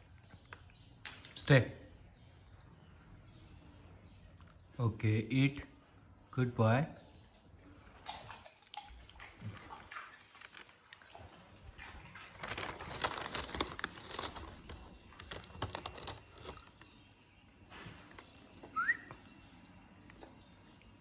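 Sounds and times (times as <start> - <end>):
dog crunching potato chips: 11.8 - 16.8.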